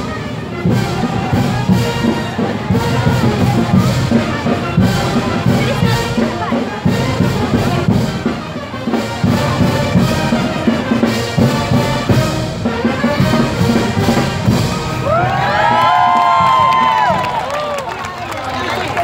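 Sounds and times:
brass band playing dance music: 0.0s - 17.2s
crowd cheering: 14.5s - 19.0s.

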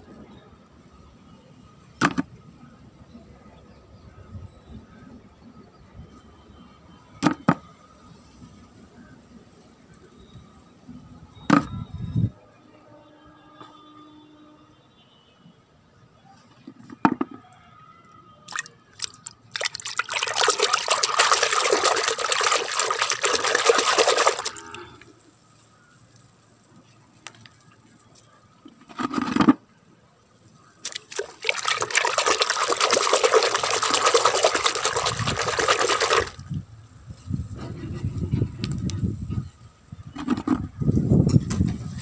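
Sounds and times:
water sloshing in plastic bucket: 18.5s - 24.8s, 30.8s - 36.5s.

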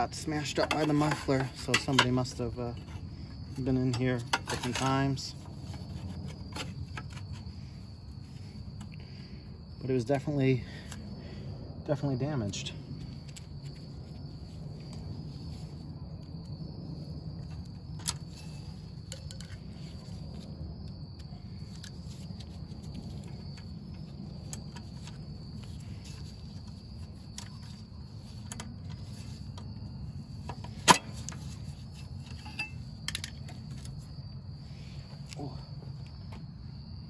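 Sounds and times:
clinks of hand tools and metal parts: 0.0s - 5.5s, 30.4s - 34.0s
insects chirring: 0.0s - 37.0s.

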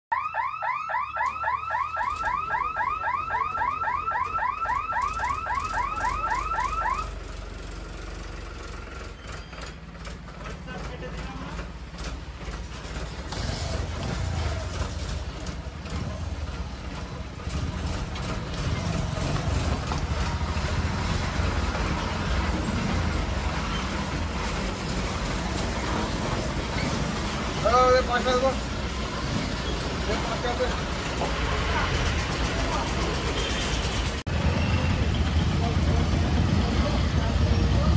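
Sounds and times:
electronic warning hooter chirping: 0.1s - 7.1s
truck engines rumbling: 0.4s - 37.9s.

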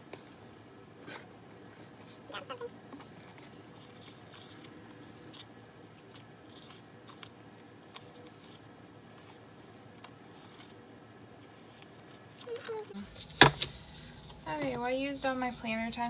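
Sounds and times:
paper rustling: 1.0s - 10.8s, 11.4s - 13.7s.

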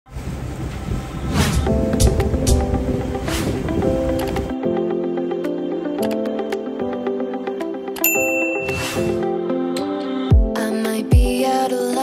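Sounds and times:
low rumble: 0.1s - 4.1s
background music with held notes: 0.8s - 12.0s.

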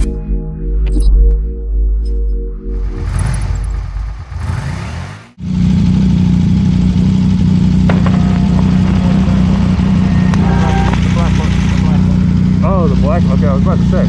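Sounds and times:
motorcycle engine idling: 5.4s - 14.0s.

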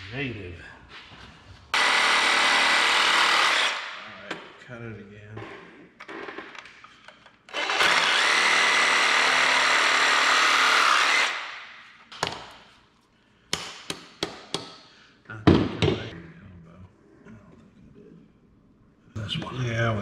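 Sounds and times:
reciprocating saw cutting pipe: 1.8s - 4.1s, 7.5s - 11.5s.

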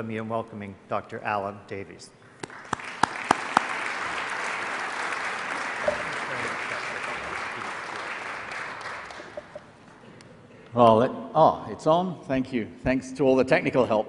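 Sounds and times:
audience applauding: 2.4s - 9.8s.

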